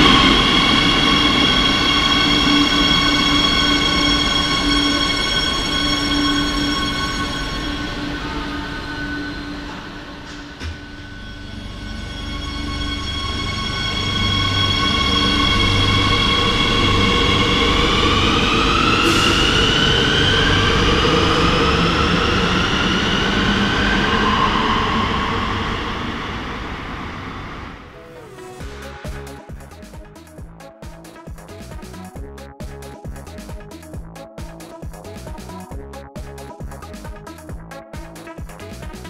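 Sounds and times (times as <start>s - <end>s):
electric train motor whine: 0.0s - 29.0s
wheels rumbling on rail: 0.0s - 30.6s.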